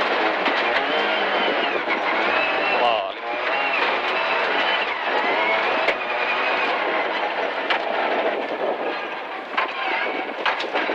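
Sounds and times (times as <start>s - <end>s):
rally car engine running hard: 0.0s - 10.9s.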